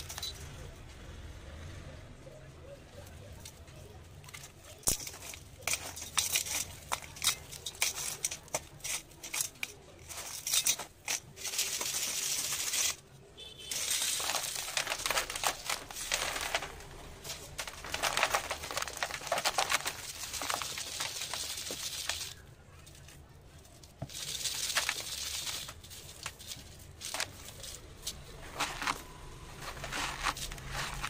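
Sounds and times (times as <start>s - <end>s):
sand sifting through sieve: 5.0s - 13.0s, 13.6s - 22.4s, 24.0s - 31.0s.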